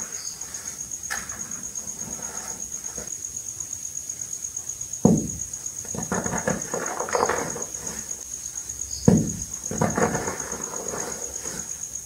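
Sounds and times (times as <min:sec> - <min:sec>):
dull thump: 0:05.0 - 0:08.0, 0:09.0 - 0:10.8.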